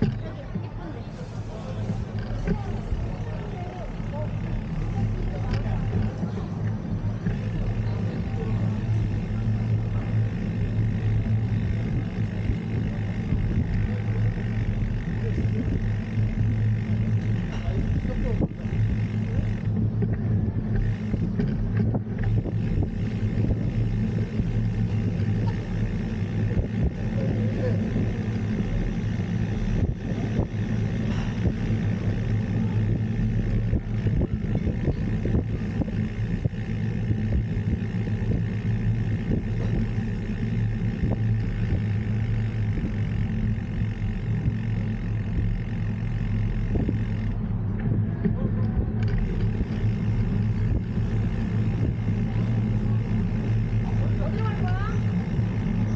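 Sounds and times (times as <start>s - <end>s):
road noise: 0.0s - 55.9s.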